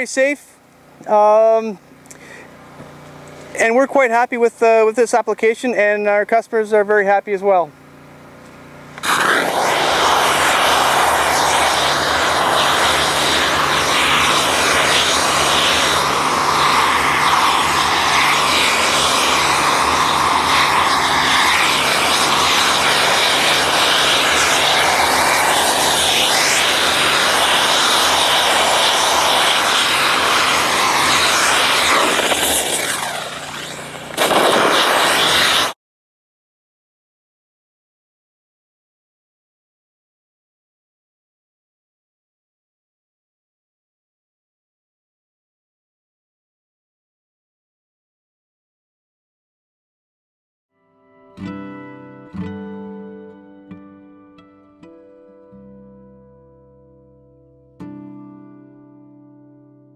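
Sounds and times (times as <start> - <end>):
pump engine hum: 7.7 - 35.8
steam spray hissing: 9.0 - 35.8.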